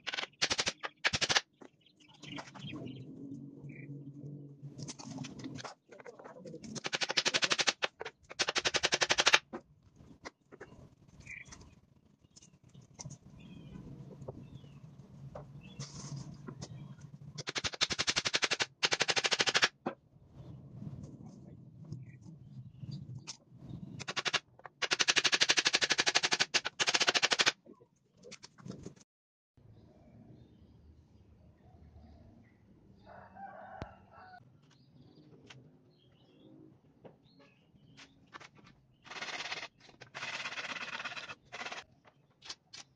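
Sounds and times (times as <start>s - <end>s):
tool clicking rapidly: 0.0s - 1.4s, 6.6s - 9.4s, 17.4s - 19.7s, 24.0s - 27.6s, 39.1s - 41.8s.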